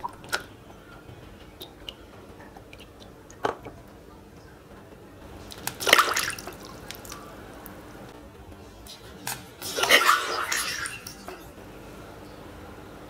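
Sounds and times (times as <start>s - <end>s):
water dripping: 0.0s - 4.6s, 5.4s - 8.2s
water splashing in a tub: 5.5s - 7.2s, 9.6s - 11.5s.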